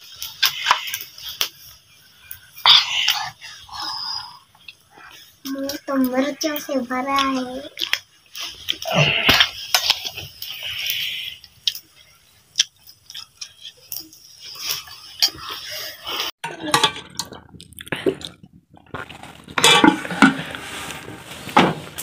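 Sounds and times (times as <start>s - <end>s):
chewing: 7.2s - 16.3s, 17.2s - 19.5s.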